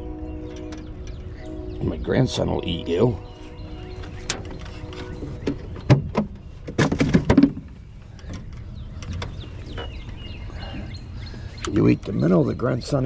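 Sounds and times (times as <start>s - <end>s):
knocks against aluminium boat hull: 5.4s - 7.7s.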